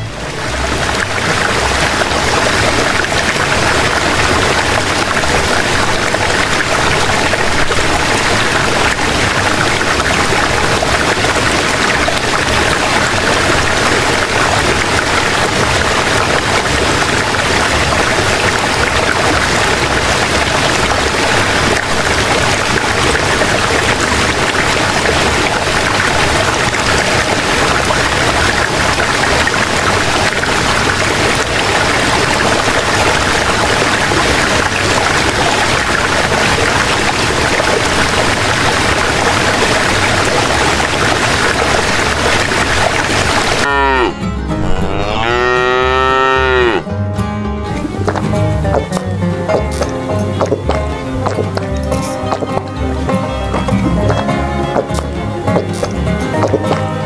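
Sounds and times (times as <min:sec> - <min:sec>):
running water rushing: 0:00.0 - 0:46.9, 0:47.7 - 0:57.0.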